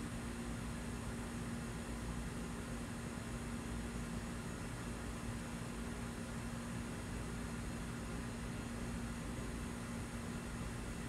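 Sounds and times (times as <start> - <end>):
constant low hum: 0.0 - 11.0.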